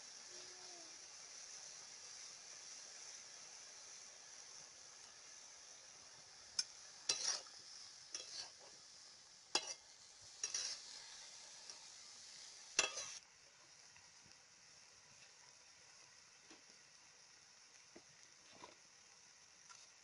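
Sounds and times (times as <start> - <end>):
greens sizzling: 0.0 - 20.0
metal spatula scraping pan: 6.6 - 7.5, 8.1 - 8.7, 9.5 - 9.8, 10.4 - 10.9, 12.8 - 13.2.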